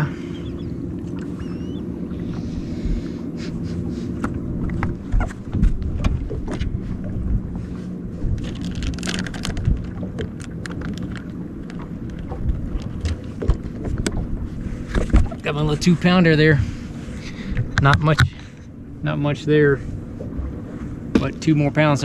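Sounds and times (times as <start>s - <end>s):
boat motor humming: 0.0s - 22.0s
knocks against boat: 21.1s - 21.4s.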